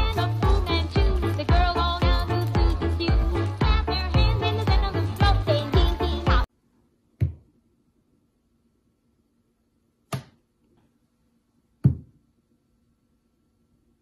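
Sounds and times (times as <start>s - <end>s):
fruit knocking on a countertop: 11.8s - 12.1s.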